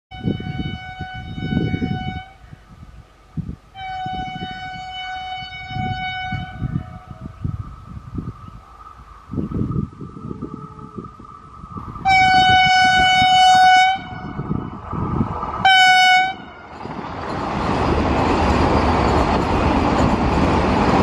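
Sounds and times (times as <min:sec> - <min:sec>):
train horn blasts: 0:00.1 - 0:02.4, 0:03.7 - 0:07.2, 0:12.0 - 0:14.7, 0:15.6 - 0:16.7
electric train whine: 0:00.1 - 0:21.0
gusty low rumble: 0:00.1 - 0:21.0.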